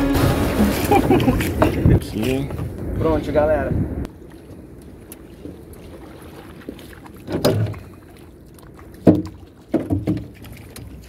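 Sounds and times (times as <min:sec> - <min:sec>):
splashes in shallow water: 0:04.1 - 0:11.0
knocks against boat hull: 0:09.0 - 0:10.4.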